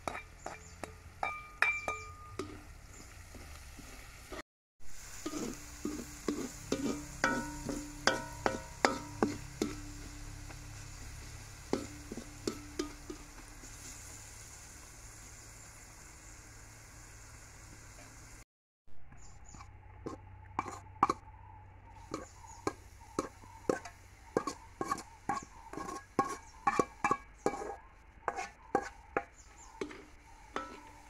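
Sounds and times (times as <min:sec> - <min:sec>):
metal ladle scraping a wok: 0:00.0 - 0:04.4, 0:05.0 - 0:14.5, 0:19.4 - 0:21.2, 0:22.0 - 0:31.0
frying sizzle: 0:00.0 - 0:18.4, 0:22.0 - 0:31.0.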